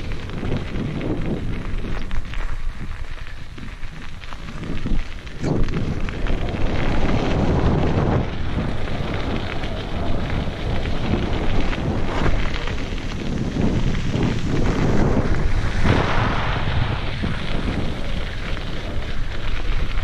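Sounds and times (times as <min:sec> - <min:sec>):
bike rattling: 0:00.0 - 0:20.0
bike tyres crunching over gravel: 0:00.0 - 0:20.0
wind rumbling on microphone: 0:00.0 - 0:20.0.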